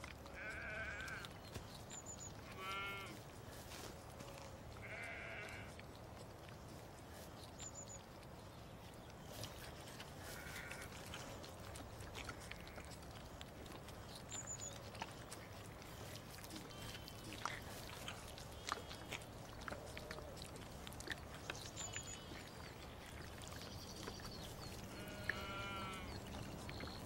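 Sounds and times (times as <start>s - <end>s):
lamb sucking bottle teat: 0.0s - 27.0s
sheep bleating: 0.3s - 1.3s, 2.5s - 3.2s, 4.2s - 5.7s, 10.3s - 10.9s, 24.9s - 26.2s
birds chirping: 0.4s - 3.2s, 6.4s - 27.0s.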